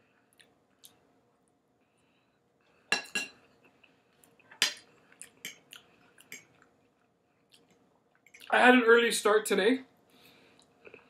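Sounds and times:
fork clinking against plate: 2.9s - 3.4s.

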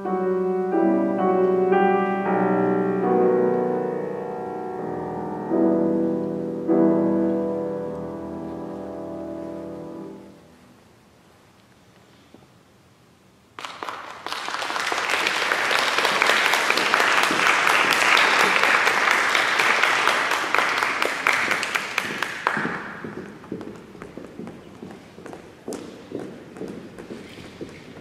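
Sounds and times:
audience applause: 13.6s - 23.1s.

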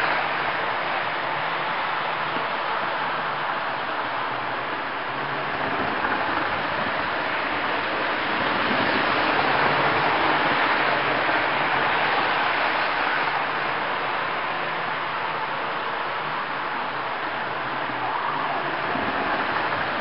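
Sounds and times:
model train wheels rumbling on rail: 3.9s - 13.8s.

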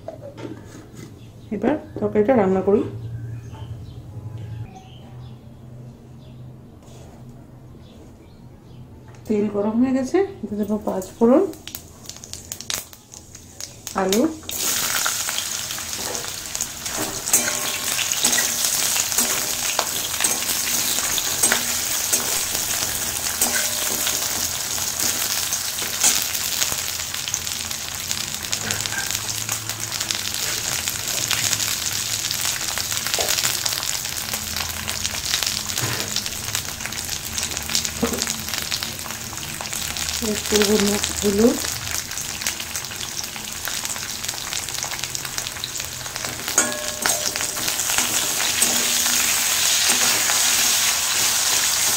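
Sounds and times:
food sizzling in hot oil: 11.5s - 51.9s
metal spatula scraping pan: 14.9s - 26.6s, 46.5s - 51.9s.

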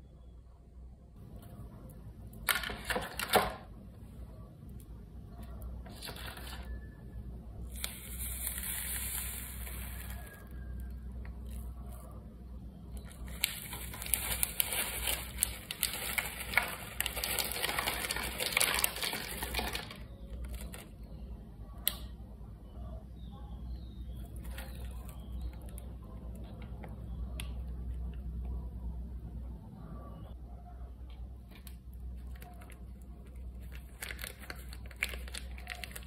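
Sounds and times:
plastic sachet tearing: 7.6s - 10.5s, 13.0s - 20.9s, 32.2s - 36.0s
plastic sachet crinkling: 7.6s - 10.6s, 13.0s - 20.9s, 24.3s - 25.9s, 31.6s - 36.0s.

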